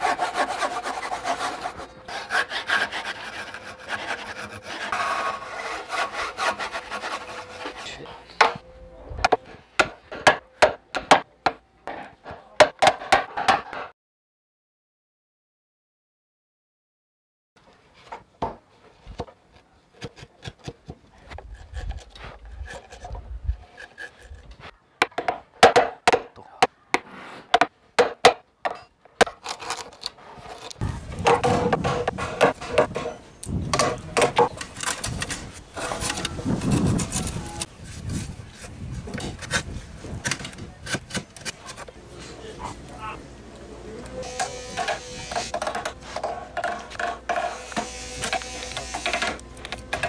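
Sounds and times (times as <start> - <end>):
chisel paring and scraping wood: 20.0 - 26.2, 27.0 - 42.0.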